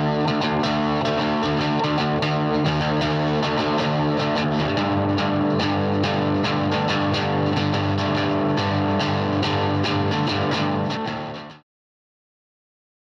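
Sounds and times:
guitar music with steady beat: 0.0 - 11.6.

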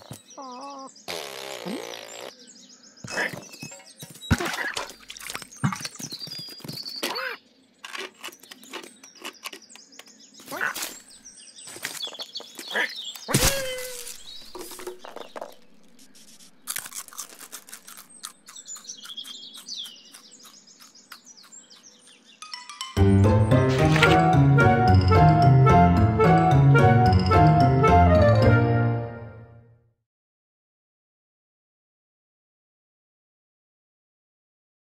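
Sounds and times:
birdsong chirping: 0.0 - 22.9
squeaky animal cries: 0.4 - 1.0
cartoon clicks and scuffles: 16.2 - 21.9.

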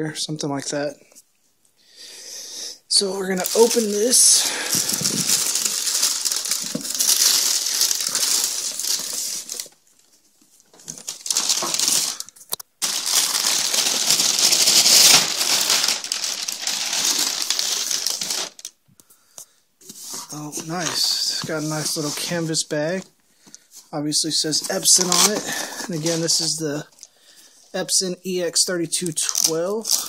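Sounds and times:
plastic wrapping crinkling: 2.9 - 18.8, 24.4 - 27.1.

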